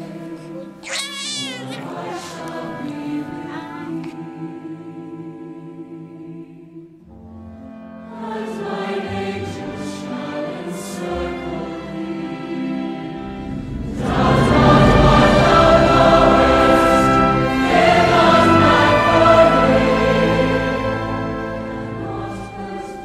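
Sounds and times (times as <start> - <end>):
choir singing with accompaniment: 0.0 - 0.8, 1.4 - 7.1, 7.7 - 23.0.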